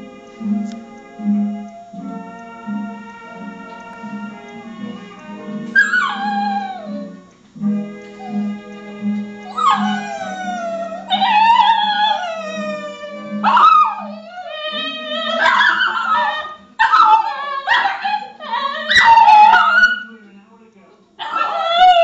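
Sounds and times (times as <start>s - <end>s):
tv theme tune: 0.0s - 14.2s
dogs howling: 1.2s - 20.1s, 21.2s - 22.0s.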